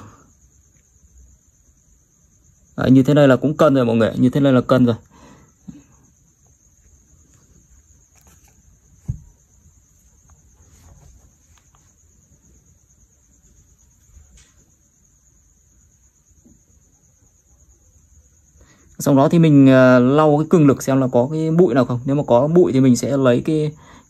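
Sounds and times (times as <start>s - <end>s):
cloth wiping phone screen: 6.8s - 9.3s, 9.9s - 12.0s
dull thump: 8.2s - 9.6s.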